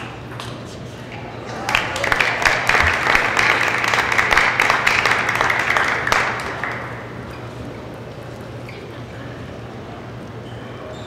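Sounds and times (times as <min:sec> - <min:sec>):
audience applauding: 0:01.5 - 0:07.4.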